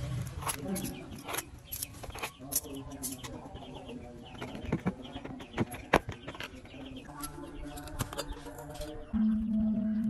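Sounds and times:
tools clicking and tapping: 0.4s - 3.5s.

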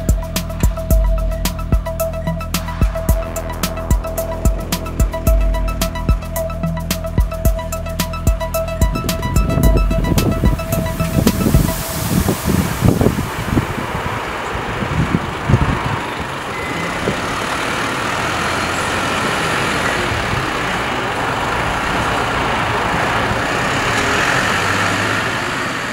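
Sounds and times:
irregular thumps: 0.0s - 13.0s
truck diesel engine running: 0.0s - 25.9s.

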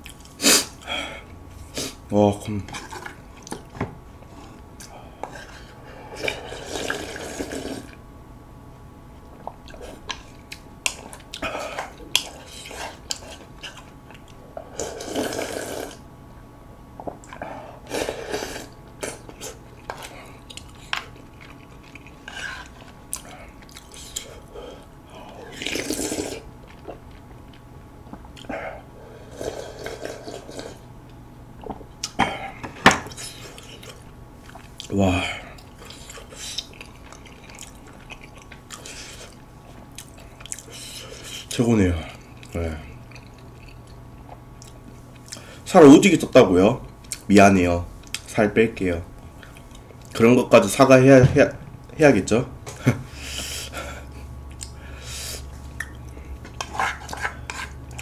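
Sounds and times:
slurping broth: 5.3s - 8.0s, 14.7s - 16.0s, 17.9s - 19.6s, 25.5s - 26.5s, 29.2s - 30.8s.

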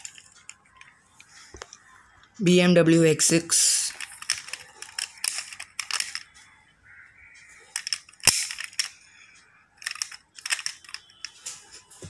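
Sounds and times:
toy car door snapping shut: 7.8s - 8.9s.

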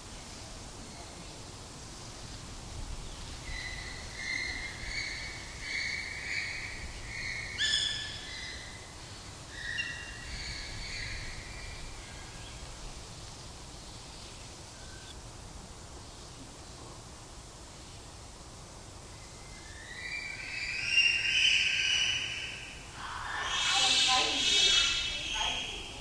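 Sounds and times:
high clear animal calls: 20.6s - 26.0s.

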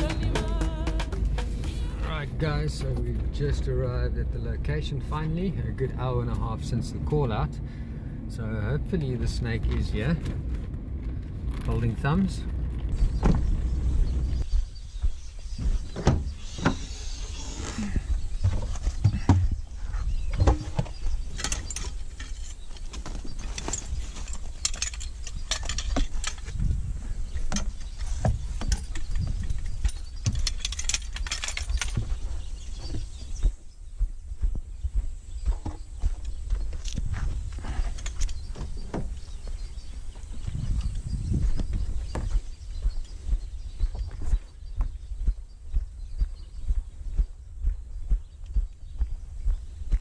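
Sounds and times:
footsteps on sandy ground: 0.0s - 4.1s, 8.9s - 30.6s, 31.6s - 50.0s
vehicle low rumble: 0.0s - 50.0s
gear knocking and clattering: 20.4s - 26.8s, 27.4s - 33.5s.

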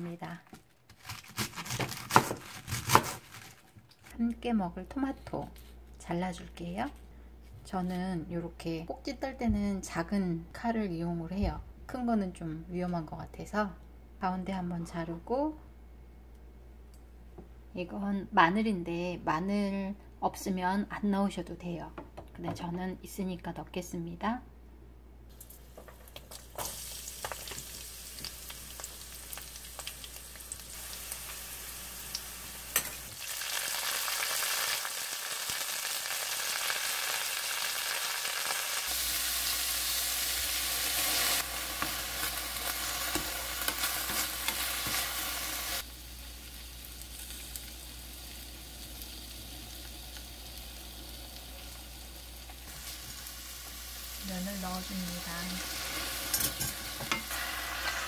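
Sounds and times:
vegetables sizzling in a wok: 25.3s - 58.0s.

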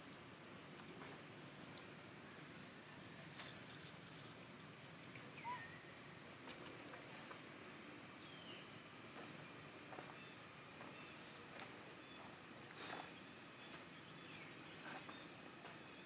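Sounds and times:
faint outdoor ambience: 0.0s - 16.0s
high downward gliding chirps: 5.2s - 6.1s.

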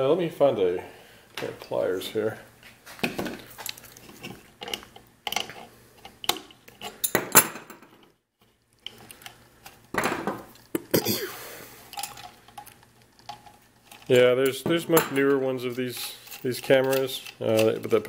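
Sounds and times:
metal tools clinking on wood: 3.6s - 8.1s, 11.9s - 18.0s.

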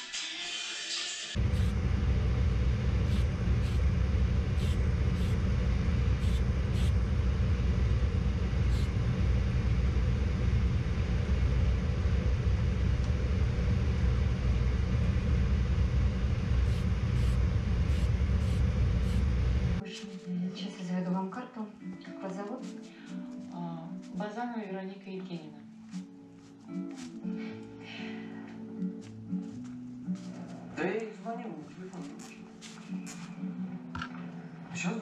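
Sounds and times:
aerosol spray can hissing: 1.4s - 2.0s, 2.8s - 7.0s, 8.6s - 9.0s, 16.6s - 19.4s
machinery rumbling: 1.4s - 19.8s.

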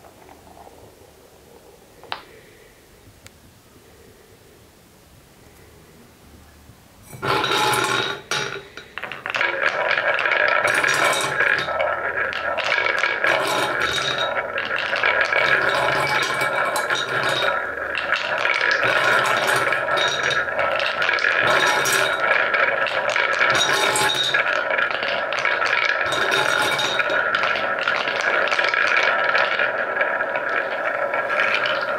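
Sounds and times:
wooden balls rolling in wooden bowl: 0.0s - 2.8s, 6.8s - 31.9s
balls clicking together: 7.1s - 31.9s.

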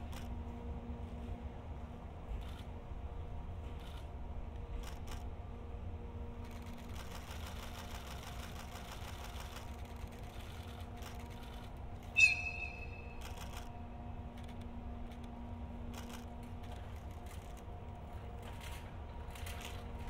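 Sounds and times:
locomotive rumbling: 0.0s - 20.0s
light rapid clicking: 6.4s - 12.2s, 13.2s - 19.9s
high-pitched shriek: 12.2s - 13.4s.

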